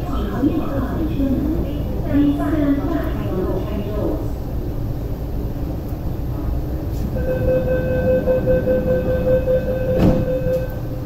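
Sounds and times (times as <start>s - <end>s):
low hum of stopped train: 0.0s - 11.0s
electronic warning tone: 7.2s - 11.0s
thump: 10.0s - 10.3s.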